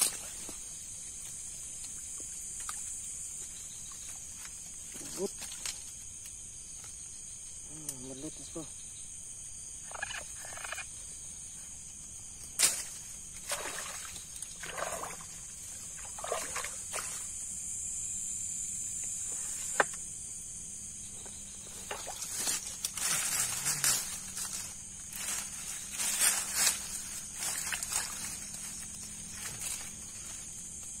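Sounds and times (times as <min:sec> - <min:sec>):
night insects chorus: 0:00.0 - 0:31.0
water sloshing and splashing: 0:13.4 - 0:17.3.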